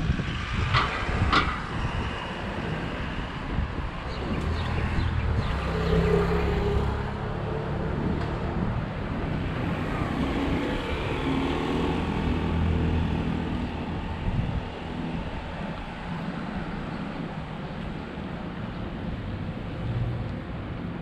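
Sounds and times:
road noise: 0:00.0 - 0:21.0
vehicles driving past: 0:00.0 - 0:21.0.

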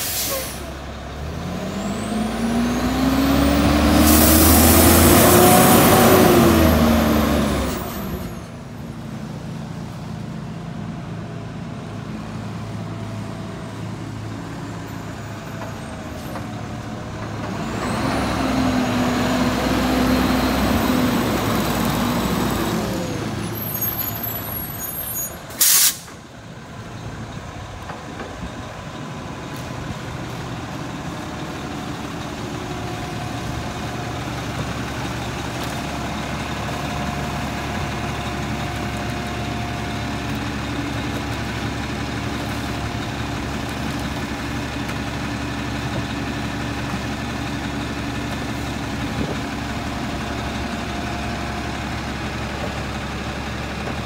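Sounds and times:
air-brake hiss: 0:00.0 - 0:00.8, 0:04.0 - 0:04.8, 0:25.2 - 0:26.2
garbage truck diesel engine: 0:00.0 - 0:54.0.

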